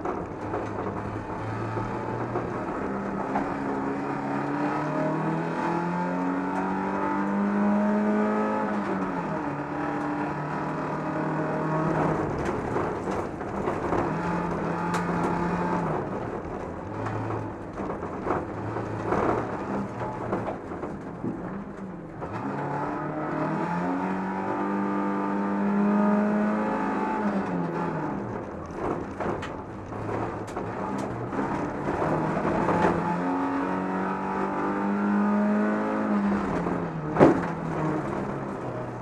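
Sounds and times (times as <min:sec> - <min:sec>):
car body knocks and rattles: 0:00.0 - 0:04.6, 0:11.0 - 0:22.8, 0:27.5 - 0:34.3, 0:36.2 - 0:39.0
car engine accelerating: 0:00.0 - 0:39.0.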